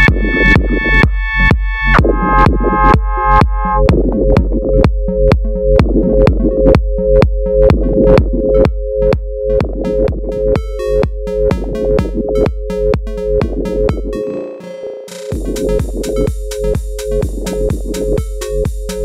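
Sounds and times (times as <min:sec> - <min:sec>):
deep held bass: 0:00.0 - 0:19.0
drum machine beat: 0:00.0 - 0:19.0
two-note synth figure: 0:10.3 - 0:15.4.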